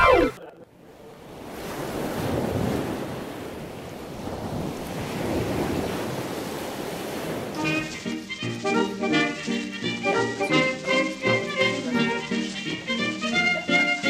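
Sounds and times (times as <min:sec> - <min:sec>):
music: 0:00.0 - 0:00.3, 0:07.6 - 0:14.0
rushing noise: 0:07.5 - 0:13.7.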